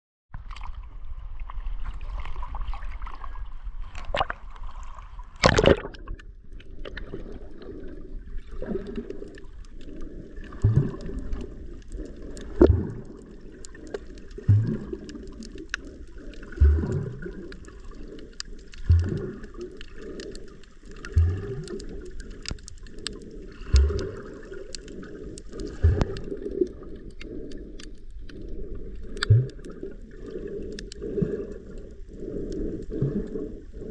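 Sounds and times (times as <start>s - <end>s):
water splashing against camera: 0.4s - 33.9s
low whooshing swim strokes: 0.7s - 33.9s
loud splash: 5.4s - 6.0s
muffled underwater noise: 6.7s - 33.9s
faint clicks: 8.6s - 33.9s.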